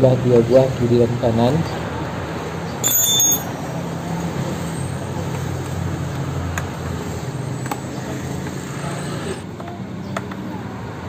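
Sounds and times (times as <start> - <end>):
metal hand tools clinking: 2.8 - 3.6.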